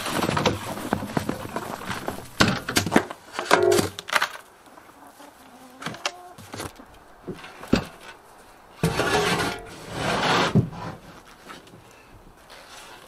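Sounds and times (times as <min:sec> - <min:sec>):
rustling and shuffling: 0:00.0 - 0:13.0.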